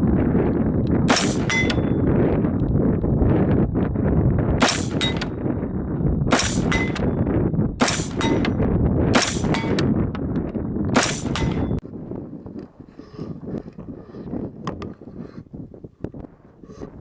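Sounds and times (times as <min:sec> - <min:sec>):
rifle shots: 0:01.1 - 0:01.9, 0:04.6 - 0:05.4, 0:06.3 - 0:07.1, 0:07.8 - 0:09.9, 0:11.0 - 0:11.8
steel target ringing: 0:01.1 - 0:02.1, 0:04.6 - 0:05.4, 0:06.3 - 0:08.6, 0:09.2 - 0:09.9, 0:11.0 - 0:11.8.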